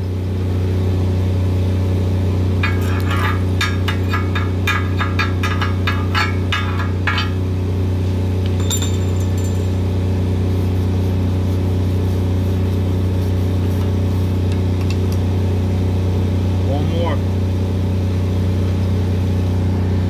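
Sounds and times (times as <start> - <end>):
diesel engine humming: 0.0 - 20.0
metallic clink with ring: 8.5 - 10.0.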